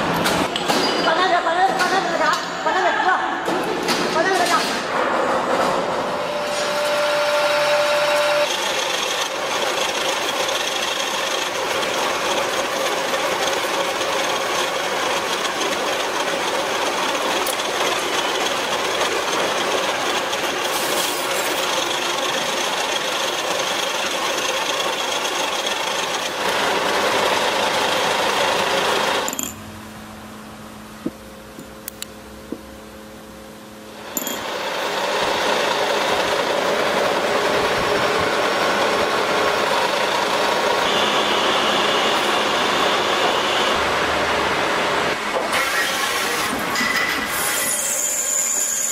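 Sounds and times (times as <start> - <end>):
metal lathe cutting: 6.2 - 29.3, 34.0 - 48.9.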